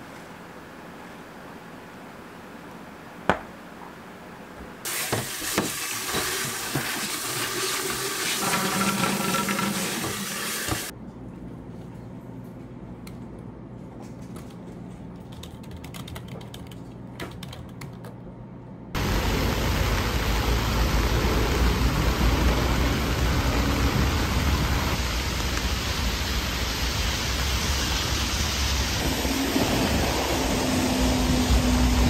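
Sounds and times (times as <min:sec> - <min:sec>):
typing on computer keyboard: 0:15.2 - 0:18.2
heavy rain on city street: 0:19.0 - 0:32.0.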